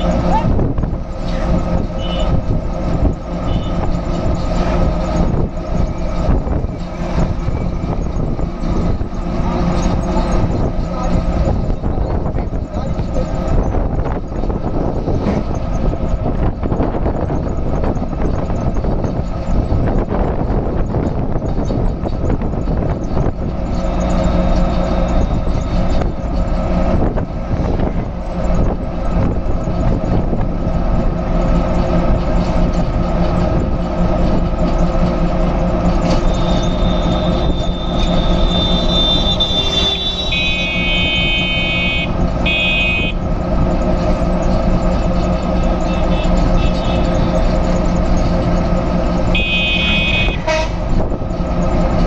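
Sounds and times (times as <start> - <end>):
bus engine running: 0.0 - 52.0
road and wind noise: 0.0 - 52.0
vehicle horn blasts: 2.0 - 2.4, 3.5 - 3.9, 36.4 - 43.2, 49.3 - 50.8
high thin tone: 36.4 - 43.2.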